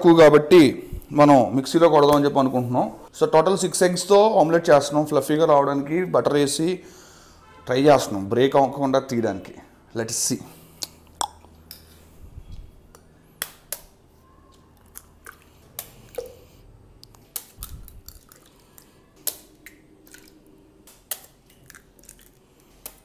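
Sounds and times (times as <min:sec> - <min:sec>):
eggshells cracking: 0:17.0 - 0:23.0.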